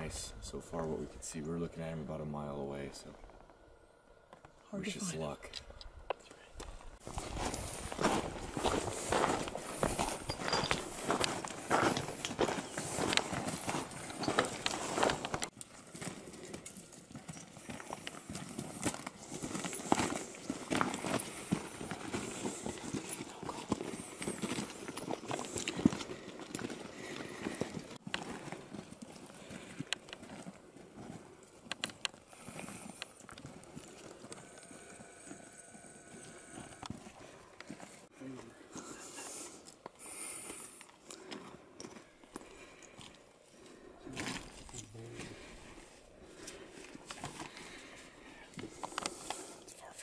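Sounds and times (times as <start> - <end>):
footsteps on gravel: 7.0 - 31.7.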